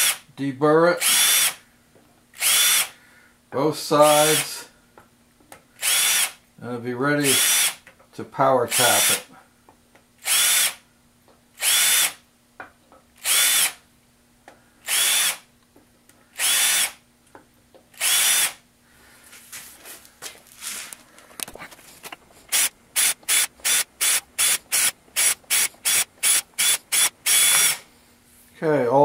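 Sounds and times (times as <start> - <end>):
cordless drill motor whine: 1.0 - 1.6, 2.4 - 3.0, 5.8 - 6.4, 7.4 - 7.8, 10.2 - 10.8, 11.6 - 12.2, 13.2 - 13.8, 14.8 - 15.5, 16.3 - 17.0, 17.9 - 18.6, 22.5 - 27.8.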